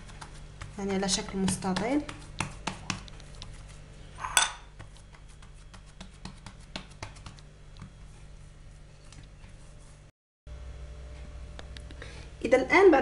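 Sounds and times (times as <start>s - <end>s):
hands pressing dough on stone: 0.0s - 3.6s, 4.7s - 8.2s.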